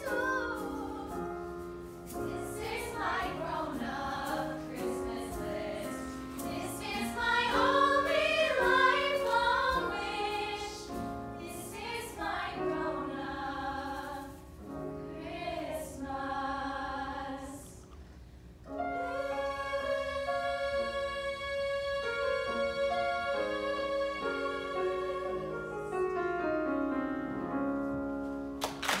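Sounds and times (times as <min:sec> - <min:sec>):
women singing in harmony: 0:00.0 - 0:01.4, 0:02.2 - 0:14.4, 0:15.1 - 0:17.8.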